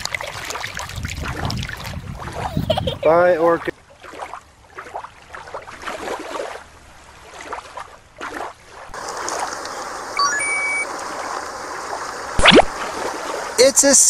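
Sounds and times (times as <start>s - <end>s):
water splashing in pool: 0.0s - 2.7s, 3.9s - 14.0s
trickling stream: 0.0s - 14.0s
rising sparkle chime: 10.2s - 10.8s.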